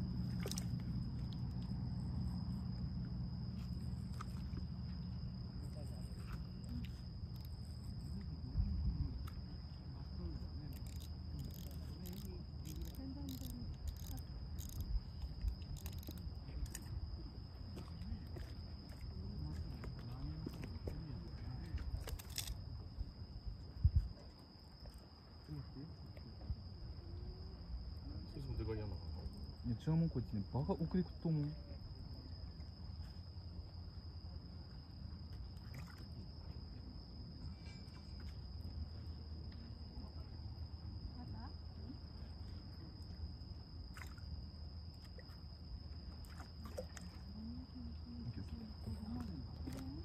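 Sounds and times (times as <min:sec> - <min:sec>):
wind and water rumble: 0:00.0 - 0:29.8
crickets chirping: 0:00.0 - 0:50.0.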